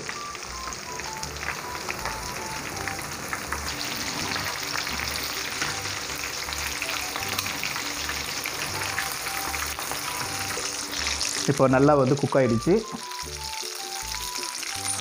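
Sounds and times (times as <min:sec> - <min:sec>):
oil sizzling and crackling: 0:00.0 - 0:15.0
metal tongs turning food: 0:14.6 - 0:15.0.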